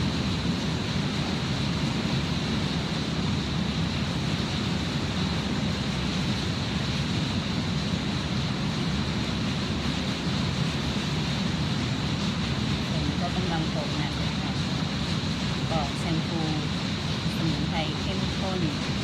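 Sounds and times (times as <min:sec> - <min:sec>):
low rumble: 0:00.0 - 0:19.0.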